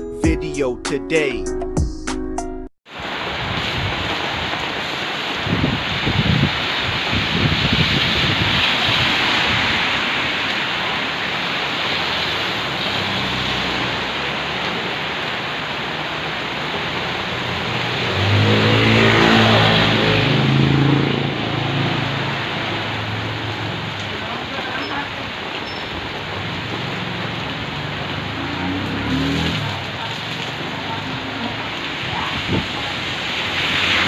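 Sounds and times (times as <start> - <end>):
heavy rain on street: 2.9 - 34.0
vehicle engine passing: 11.2 - 25.4, 26.1 - 34.0.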